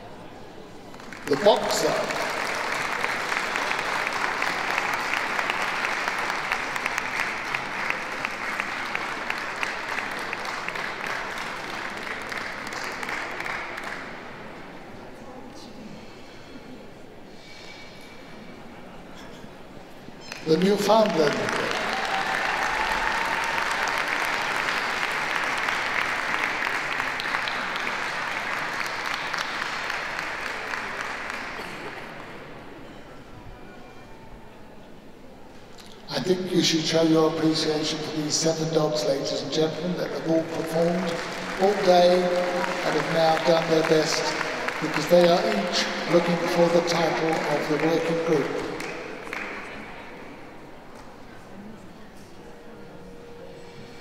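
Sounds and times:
audience applauding: 0:00.9 - 0:14.6, 0:20.2 - 0:32.6, 0:37.0 - 0:50.0.

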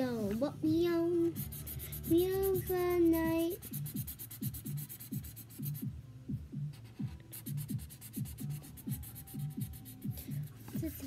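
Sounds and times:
low background music beat: 0:00.0 - 0:11.0
marker scribbling on paper: 0:01.3 - 0:05.9, 0:06.7 - 0:11.0.

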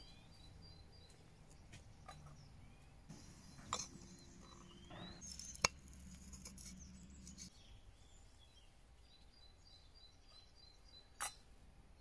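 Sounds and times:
birds chirping faintly: 0:00.0 - 0:12.0.

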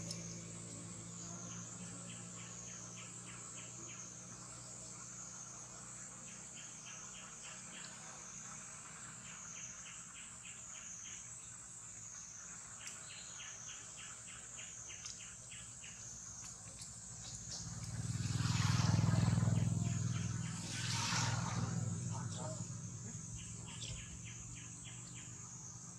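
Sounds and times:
rhythmic insect chirping: 0:00.0 - 0:25.9
low hum: 0:16.7 - 0:25.9
high-pitched insect drone: 0:17.2 - 0:25.9.

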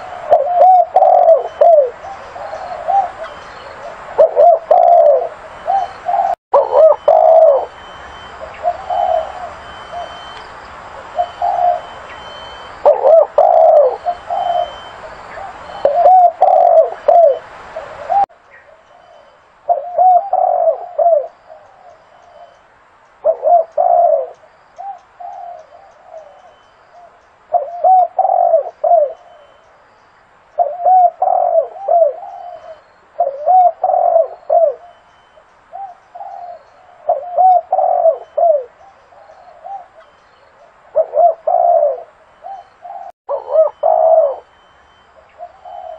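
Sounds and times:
dove cooing: 0:00.0 - 0:22.6, 0:23.2 - 0:29.6, 0:30.6 - 0:45.9
steady hiss: 0:07.1 - 0:19.8.

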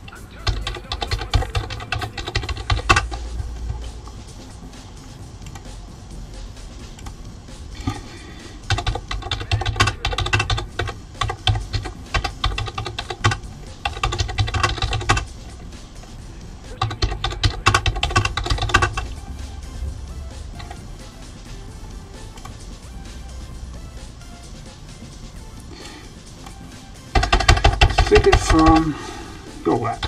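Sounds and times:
computer keyboard typing: 0:00.0 - 0:04.1, 0:08.6 - 0:16.1, 0:16.7 - 0:19.4, 0:20.5 - 0:20.8, 0:27.1 - 0:29.0
background music: 0:00.0 - 0:30.0.

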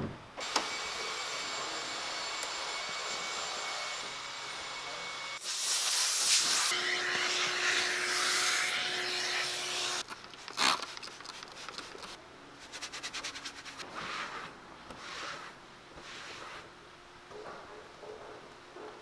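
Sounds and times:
vacuum hose sucking hiss: 0:05.4 - 0:06.7
brush scrubbing plastic: 0:10.5 - 0:16.7.

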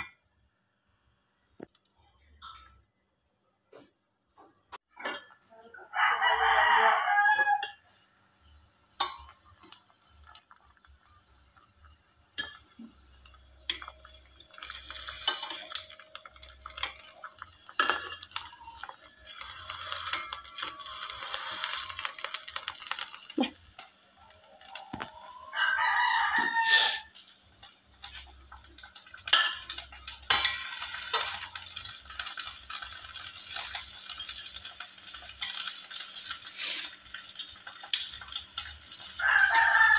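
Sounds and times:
food sizzling in hot oil: 0:04.7 - 0:39.9
tongs clicking against pan: 0:07.4 - 0:07.8, 0:09.0 - 0:10.6, 0:12.3 - 0:24.0, 0:27.2 - 0:39.2.

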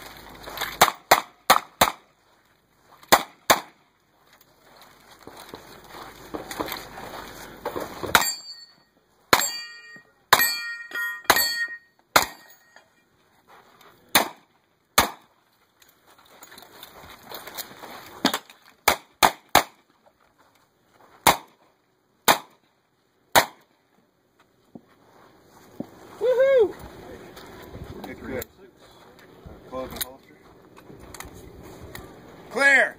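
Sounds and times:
steel targets clanging: 0:08.0 - 0:13.0.

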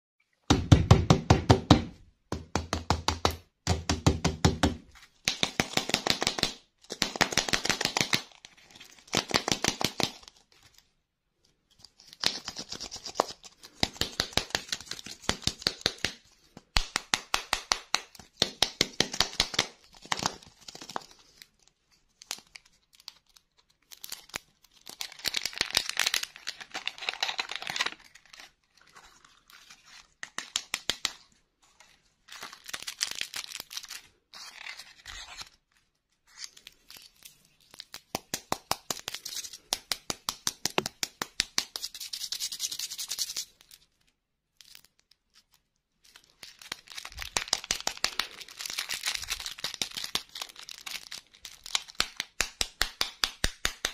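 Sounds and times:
plastic wrapper crinkling: 0:19.7 - 0:41.0, 0:41.6 - 0:52.6.

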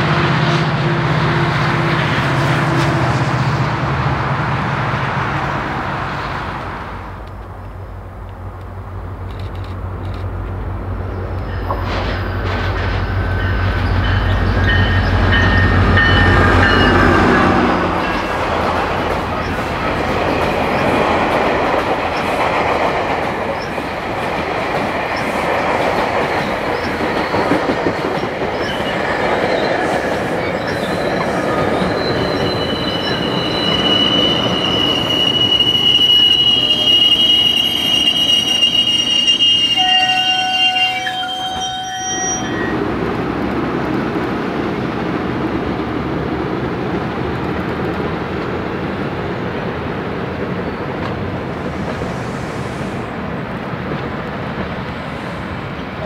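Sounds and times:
train wheels rumbling: 0:00.0 - 0:56.0
high wheel squeal: 0:11.4 - 0:18.5, 0:26.7 - 0:27.8, 0:28.5 - 0:42.8.

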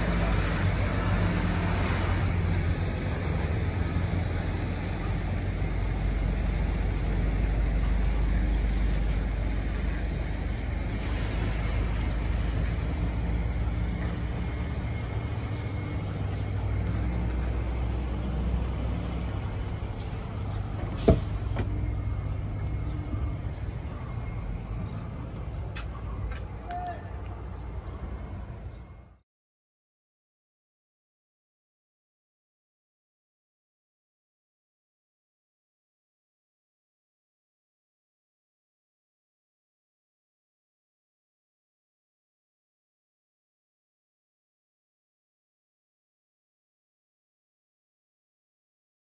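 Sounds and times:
truck diesel engine idling: 0:00.0 - 0:26.6.

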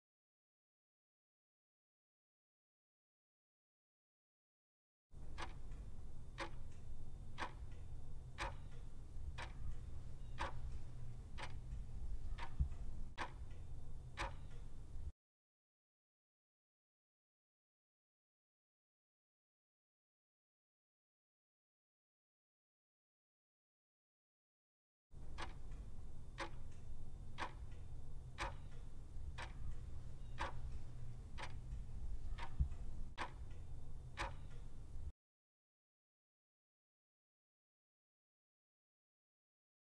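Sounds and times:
clock ticking: 0:05.2 - 0:15.1, 0:25.2 - 0:35.1
low steady hum: 0:05.2 - 0:15.1, 0:25.2 - 0:35.1.

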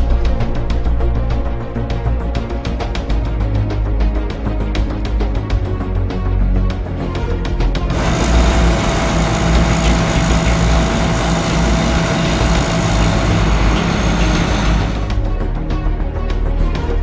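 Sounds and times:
combine harvester running: 0:07.9 - 0:15.2.

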